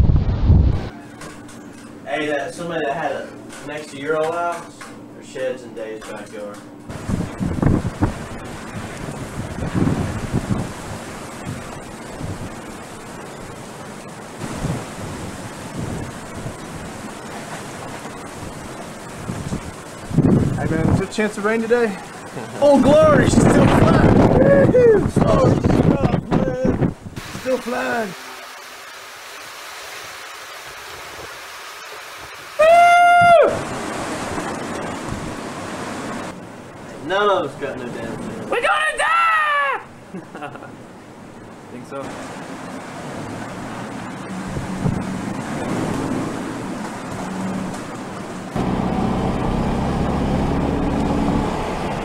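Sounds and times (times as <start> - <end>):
wind buffeting microphone: 0.0 - 0.9, 6.9 - 13.6, 14.4 - 21.2, 22.1 - 27.6, 33.2 - 36.9, 42.3 - 52.0
hurricane wind: 0.0 - 5.5, 6.3 - 52.0
driving rain: 6.9 - 52.0.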